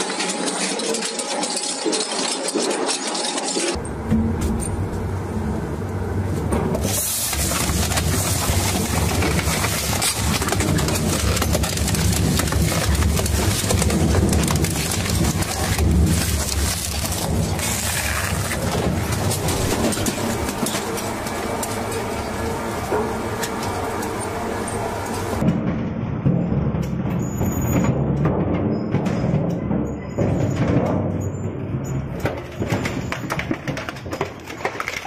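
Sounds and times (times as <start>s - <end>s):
crushing machine grinding: 0.0s - 3.8s, 6.5s - 25.5s, 31.6s - 35.0s
low machine hum: 3.8s - 25.5s.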